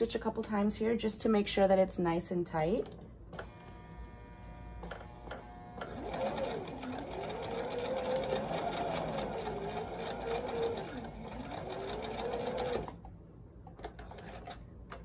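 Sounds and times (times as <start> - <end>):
sewing machine stitching: 5.8 - 13.0.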